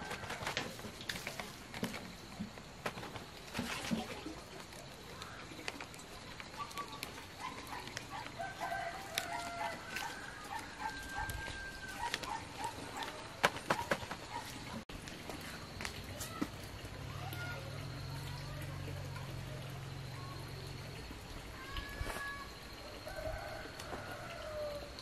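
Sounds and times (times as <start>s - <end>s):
leaves crinkling and rustling: 0.0s - 17.2s, 21.6s - 22.6s
rooster crowing: 8.1s - 12.7s, 22.8s - 25.0s.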